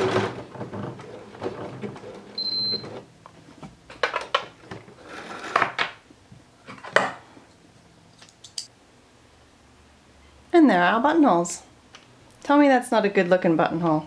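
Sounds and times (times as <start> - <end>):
sewing machine stitching: 0.0 - 3.0.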